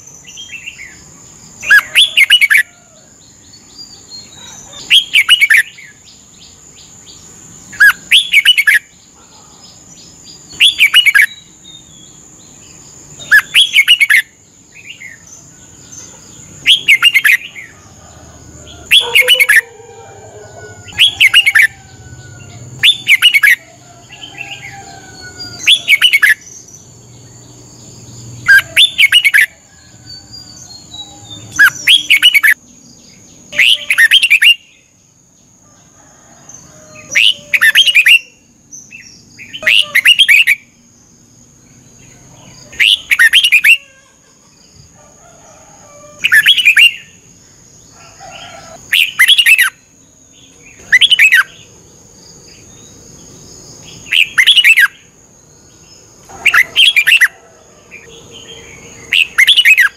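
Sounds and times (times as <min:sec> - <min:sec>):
other birds calling: 0:00.0 - 0:03.0, 0:07.1 - 0:32.6, 0:33.4 - 0:34.8, 0:36.1 - 0:40.7, 0:41.7 - 0:47.3, 0:55.8 - 0:59.9
bulbul singing: 0:00.0 - 0:35.0, 0:48.8 - 0:57.4, 0:58.0 - 0:59.9.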